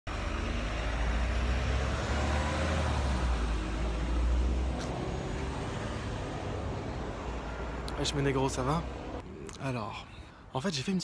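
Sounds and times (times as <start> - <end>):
vehicle passing close by: 0.1 - 9.2
road traffic rumble: 0.1 - 10.8.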